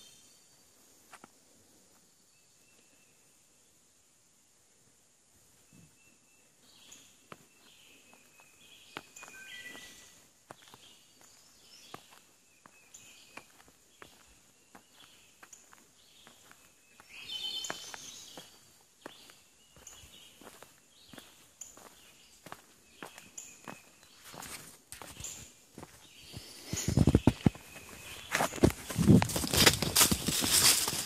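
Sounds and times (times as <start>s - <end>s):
birds chirping: 5.6s - 31.0s
footsteps on a log: 7.2s - 31.0s.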